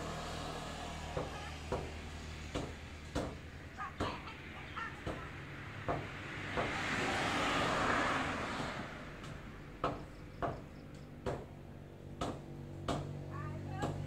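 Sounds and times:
cleaver chopping meat on block: 12.2 - 13.2.

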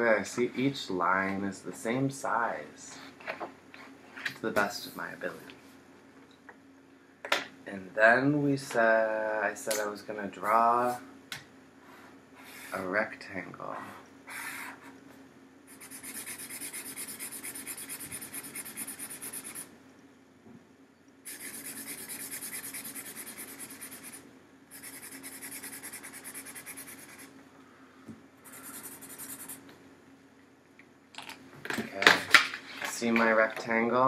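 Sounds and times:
marker scribbling on paper: 15.7 - 19.7, 21.3 - 27.3, 28.5 - 29.6.

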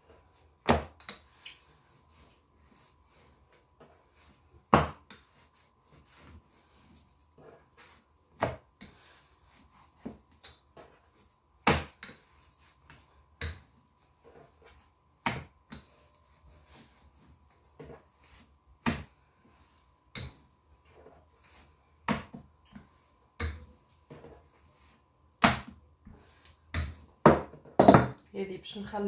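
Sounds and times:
rolling pin rolling dough: 0.0 - 28.1
rolling pin knocking on worktop: 26.8 - 28.2.

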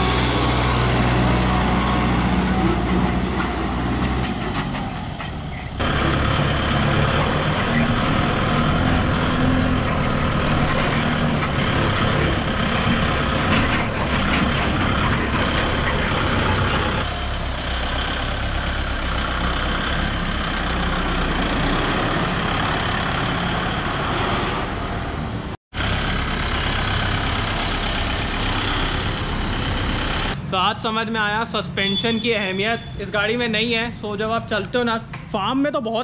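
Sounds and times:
tractor diesel engine running: 0.0 - 24.2, 25.7 - 31.7.

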